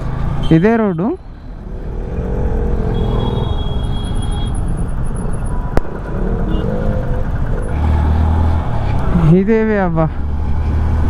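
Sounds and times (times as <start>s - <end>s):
motorcycle engine: 0.0s - 11.0s.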